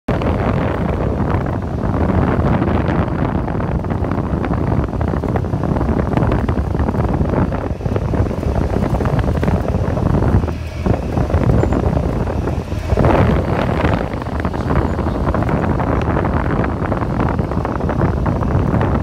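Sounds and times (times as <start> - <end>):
small plane engine and propeller: 0.1 - 19.0
wind buffeting microphone: 0.1 - 19.0.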